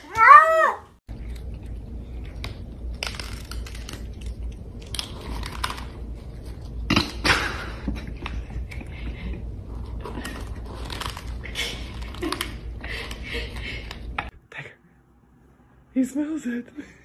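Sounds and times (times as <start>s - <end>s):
cat crunching dry kibble: 1.1s - 7.2s, 9.6s - 14.1s.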